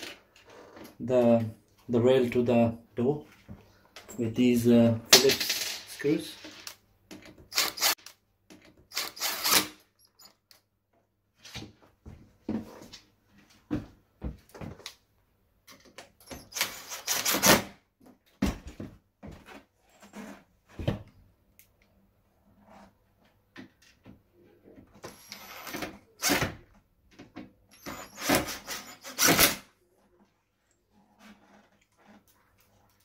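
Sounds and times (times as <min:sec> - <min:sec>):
cordless driver driving screws: 0:07.2 - 0:10.4.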